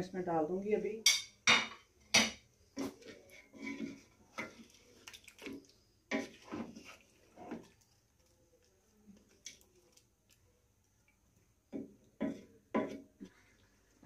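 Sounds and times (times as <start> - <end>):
wooden spatula scraping metal pot: 2.2 - 8.0, 11.7 - 14.0.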